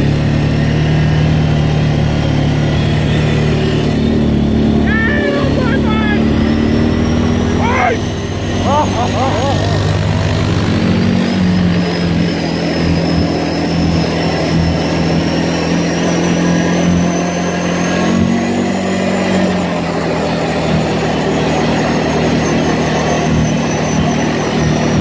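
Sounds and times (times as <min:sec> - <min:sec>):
quad engine running: 0:00.0 - 0:25.0
thin high whine: 0:01.4 - 0:10.4, 0:11.3 - 0:25.0.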